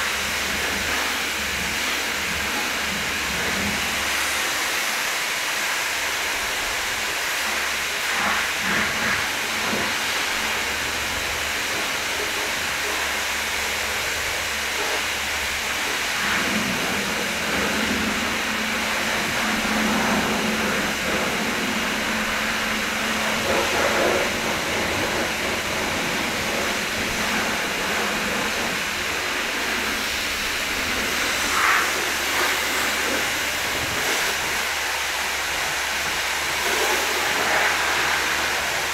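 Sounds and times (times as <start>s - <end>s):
pressure washer spraying water: 0.0s - 38.9s.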